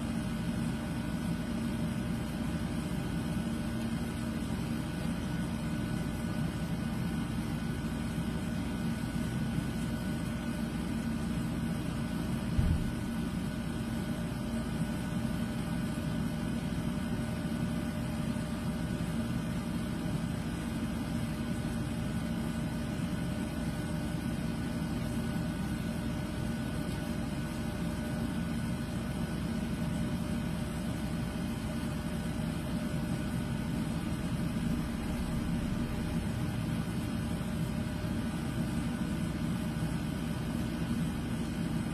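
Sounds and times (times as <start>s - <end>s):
mechanical hum: 0.0s - 41.9s
short low thump: 12.6s - 13.1s.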